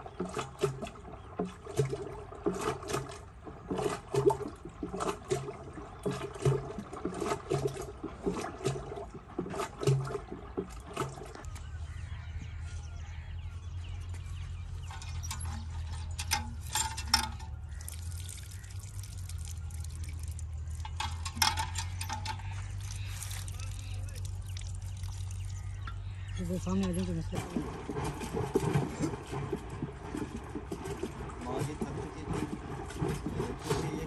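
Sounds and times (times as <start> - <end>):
yogurt sloshing in churn: 0.0 - 12.0, 14.8 - 34.0
steady low hum: 0.0 - 34.0.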